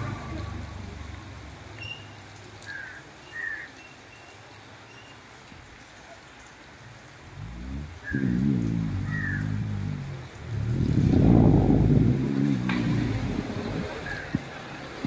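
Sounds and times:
heavy rain on foliage: 0:00.0 - 0:15.0
low hum: 0:07.4 - 0:14.4.

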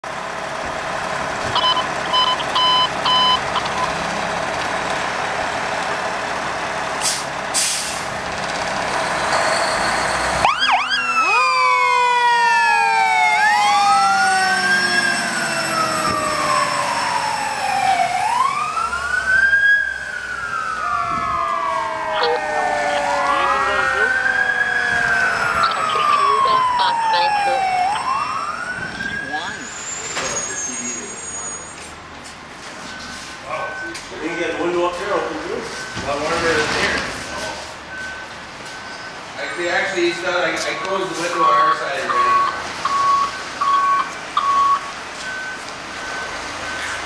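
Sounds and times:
fire truck engine running: 0:00.0 - 0:47.0
falling siren tone: 0:01.5 - 0:04.1, 0:09.3 - 0:31.8
wailing siren: 0:01.5 - 0:04.1, 0:10.3 - 0:30.4
short beeps: 0:01.6 - 0:03.9, 0:40.6 - 0:47.0.

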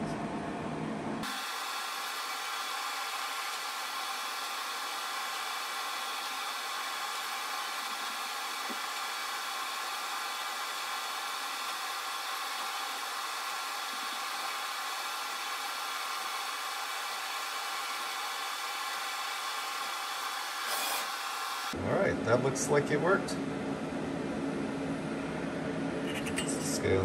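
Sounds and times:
laser engraver fan-like hiss: 0:01.2 - 0:21.8.

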